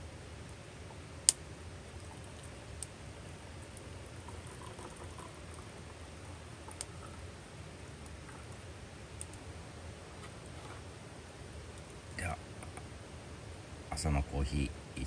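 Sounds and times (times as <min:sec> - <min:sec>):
wood fire popping: 0:00.4 - 0:13.0
hot water pouring into metal mug: 0:04.2 - 0:06.0.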